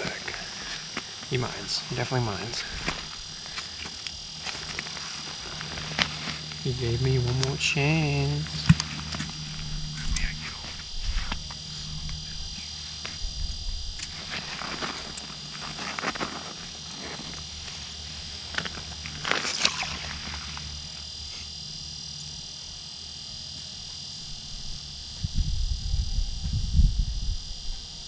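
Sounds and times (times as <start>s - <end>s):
fishing line and rod scraping: 14.0s - 21.5s.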